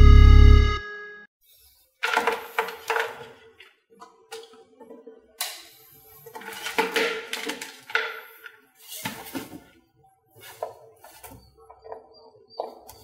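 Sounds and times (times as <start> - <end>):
knocks and rustles of handling: 2.0 - 5.0, 6.2 - 9.8, 10.4 - 13.0.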